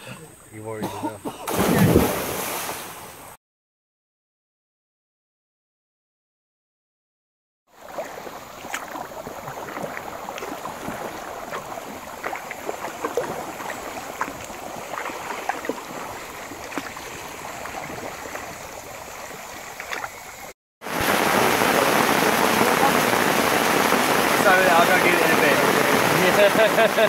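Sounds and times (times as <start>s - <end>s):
moving river water: 0.0s - 3.4s, 7.7s - 27.0s
paddle splashes and drips: 7.7s - 20.6s.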